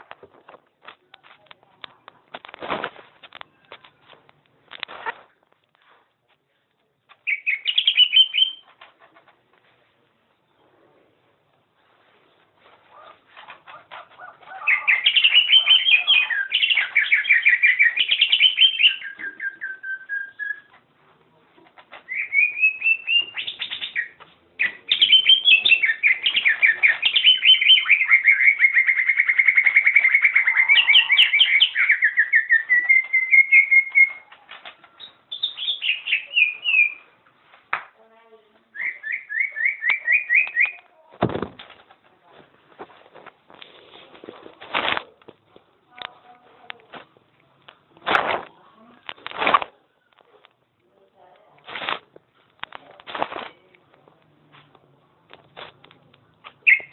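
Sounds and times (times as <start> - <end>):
bird singing rapid chattering notes: 7.2 - 8.6, 14.6 - 20.7, 22.1 - 34.2, 35.0 - 37.0, 56.6 - 56.9.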